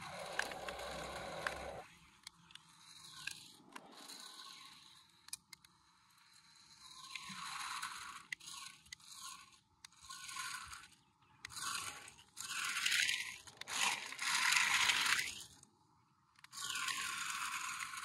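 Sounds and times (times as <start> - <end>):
toy truck tyres crunching gravel: 0.0 - 5.5, 6.4 - 15.6, 16.4 - 18.0.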